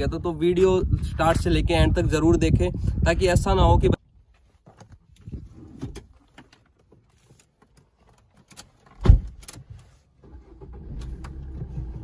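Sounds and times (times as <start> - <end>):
light clicks and rattles in car: 4.7 - 12.0.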